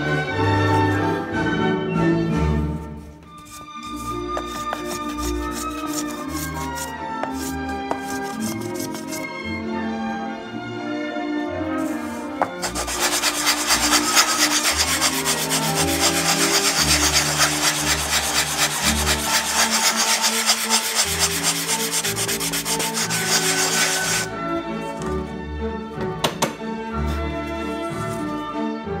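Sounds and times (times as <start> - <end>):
hand block rasping on wood: 3.5 - 9.3, 12.4 - 24.3.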